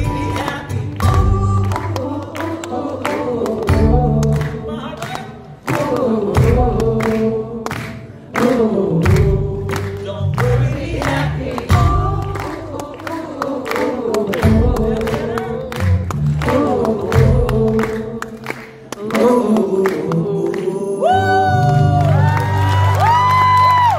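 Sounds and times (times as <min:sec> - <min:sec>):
live band music: 0:00.0 - 0:12.9, 0:14.0 - 0:19.6
crowd singing along: 0:00.0 - 0:21.2
high whoops: 0:21.0 - 0:23.9.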